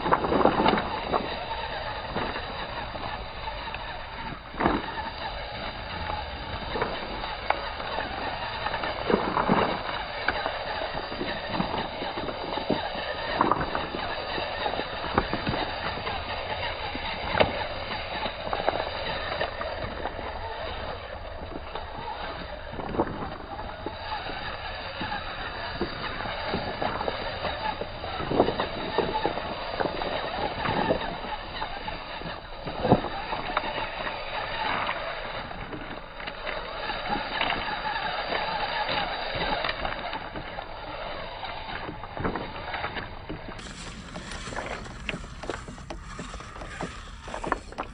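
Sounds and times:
toy car grinding over stones: 0:00.0 - 0:47.9
stones clacking: 0:43.6 - 0:47.9.

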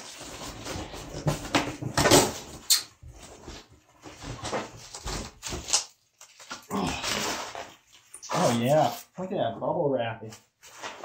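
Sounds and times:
bubble wrap rustling: 0:03.2 - 0:09.2.

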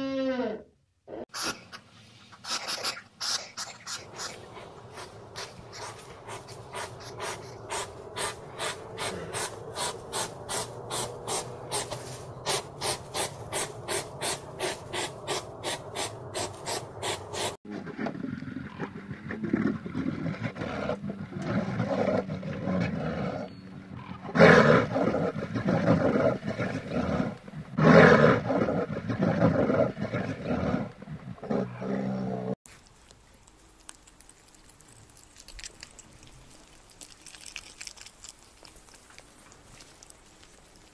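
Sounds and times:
hedgehog snuffling through grass: 0:01.4 - 0:17.6, 0:32.7 - 0:40.9
bear growling: 0:04.0 - 0:32.6.

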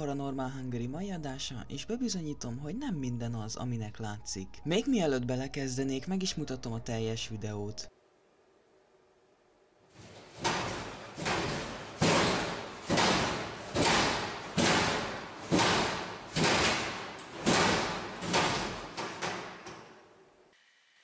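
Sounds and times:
heavy banging slams: 0:10.0 - 0:19.8.

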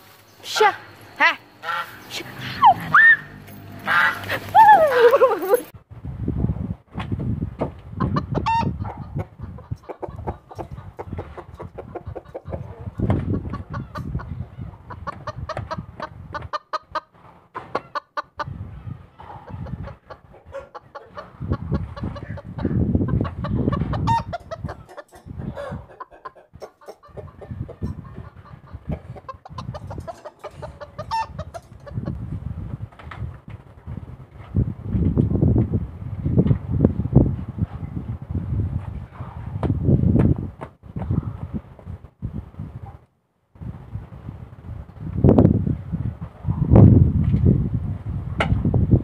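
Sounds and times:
chicken clucking: 0:01.6 - 0:02.8, 0:08.0 - 0:32.4.

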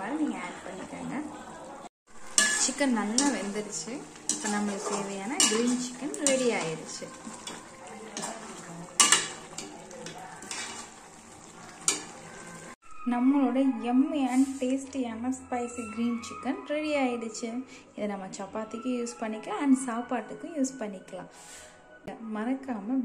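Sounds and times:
metal ladle scraping pot: 0:02.2 - 0:12.8.

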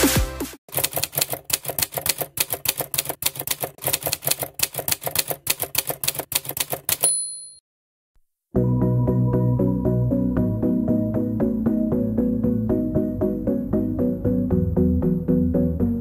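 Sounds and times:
typewriter key clacks: 0:00.7 - 0:07.1
typewriter bell ding: 0:00.8 - 0:07.6.

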